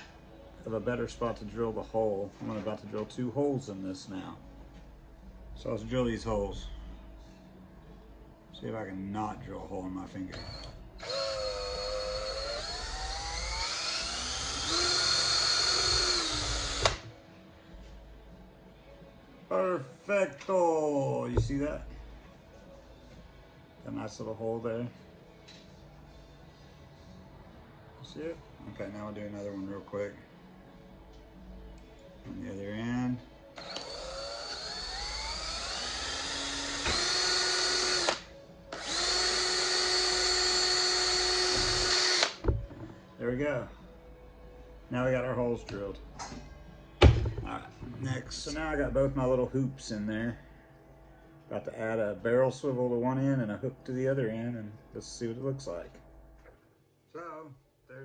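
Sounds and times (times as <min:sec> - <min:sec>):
cordless drill whining: 0:10.3 - 0:17.1, 0:33.6 - 0:42.6
drill click: 0:10.4 - 0:17.0, 0:33.6 - 0:42.4.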